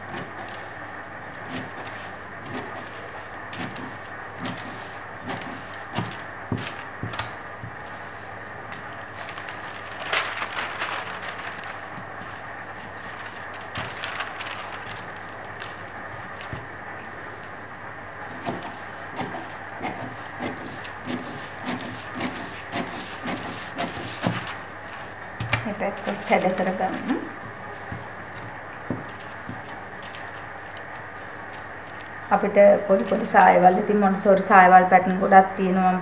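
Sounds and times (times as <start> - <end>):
cloth rustling: 1.4 - 16.8.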